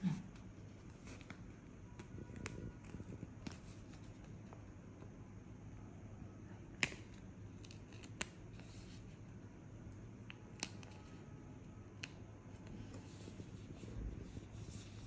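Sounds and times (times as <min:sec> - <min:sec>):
faint low hum: 0:00.0 - 0:15.0
vinyl film peeling crackles: 0:00.8 - 0:04.7, 0:06.8 - 0:09.2, 0:10.3 - 0:11.2.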